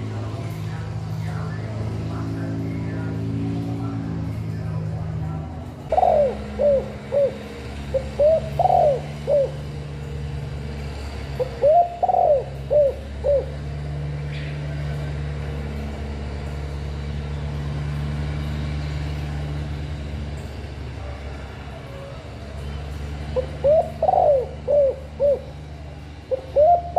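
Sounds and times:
dove cooing: 5.9 - 9.8, 11.4 - 13.6, 23.4 - 25.6, 26.3 - 26.9.

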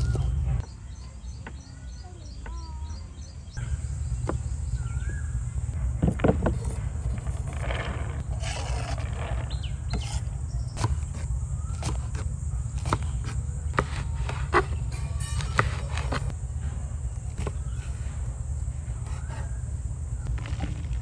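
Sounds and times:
bird chirping: 0.0 - 16.3
low rumble: 3.4 - 13.8, 16.2 - 21.0
knife chopping vegetables on wood: 10.8 - 16.3, 17.2 - 18.1, 19.0 - 19.6.

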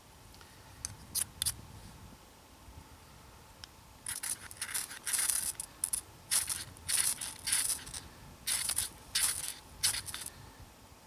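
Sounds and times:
knife scraping ferro rod: 4.1 - 10.3.

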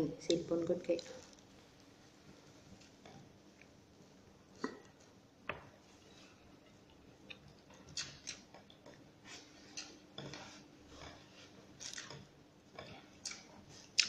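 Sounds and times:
person chewing food: 6.0 - 14.0.

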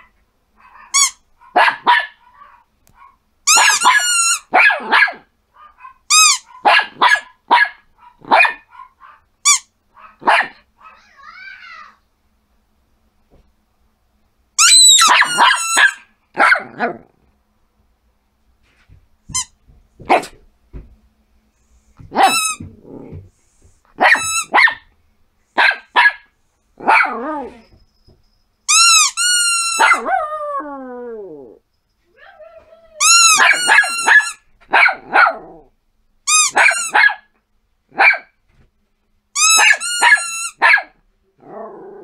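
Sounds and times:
small dog yapping: 0.6 - 9.2, 10.0 - 11.9, 14.6 - 16.8, 22.1 - 22.7, 24.0 - 24.8, 25.6 - 26.2, 26.8 - 27.6, 29.6 - 30.2, 32.1 - 35.4, 36.5 - 37.3, 38.0 - 38.3, 39.4 - 40.9.

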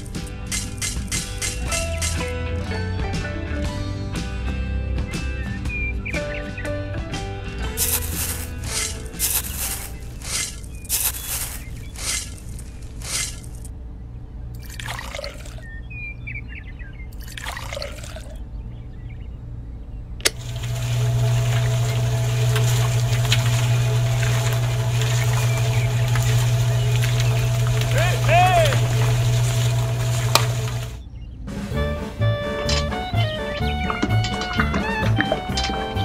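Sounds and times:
toy shovel scraping sand: 7.8 - 13.7, 24.5 - 31.0
water pouring into drum: 14.6 - 15.6, 17.2 - 18.3, 20.4 - 31.0
small electric motor humming: 20.3 - 31.0.

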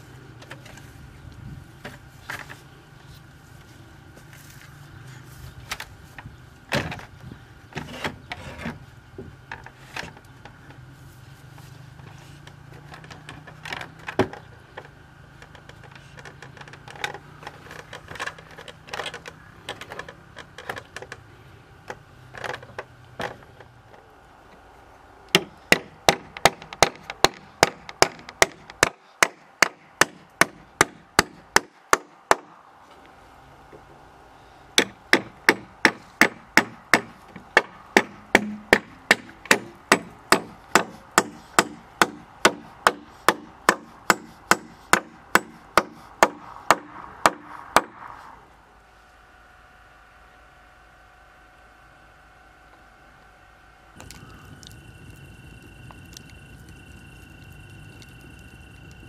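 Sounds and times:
hand tool striking wood: 25.4 - 32.5, 34.8 - 48.0.

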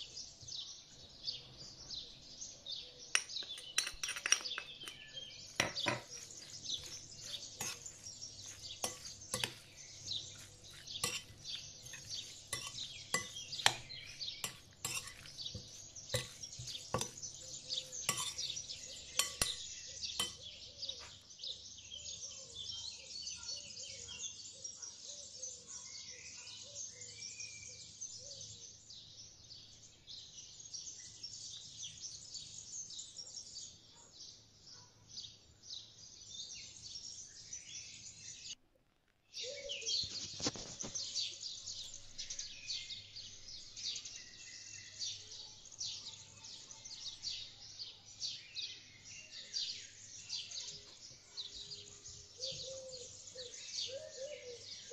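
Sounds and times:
spoon clinking on glass bowl: 3.2 - 6.2, 7.6 - 9.7, 10.7 - 17.4, 18.0 - 20.5.

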